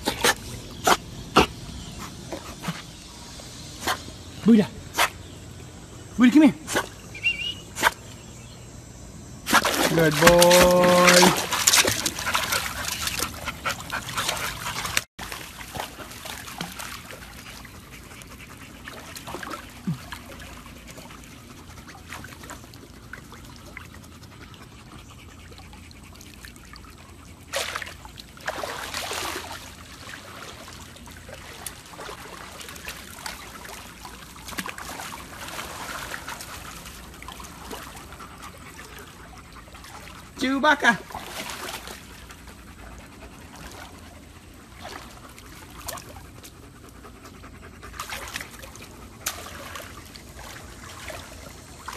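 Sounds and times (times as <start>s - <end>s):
pool water lapping and splashing: 0.0s - 8.6s, 9.4s - 51.9s
dog panting: 11.7s - 15.1s, 17.3s - 22.1s, 23.7s - 27.5s, 42.3s - 44.6s, 45.2s - 49.3s.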